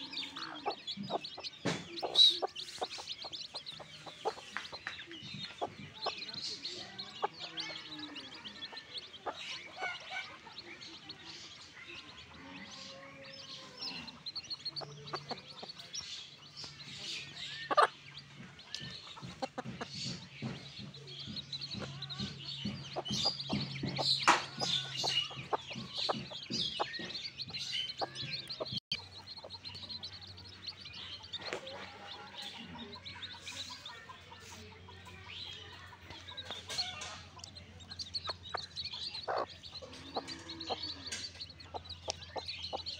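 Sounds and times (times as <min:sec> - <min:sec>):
chicks peeping: 0:00.0 - 0:42.9
hen clucking: 0:00.0 - 0:42.9.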